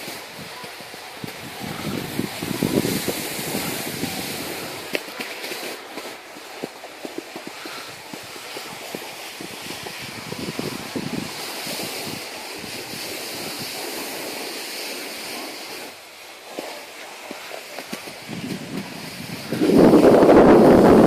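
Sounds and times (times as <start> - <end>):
wind rushing on microphone: 0.0 - 5.0, 7.7 - 13.8, 18.0 - 21.0
snowboard sliding on packed snow: 0.0 - 21.0.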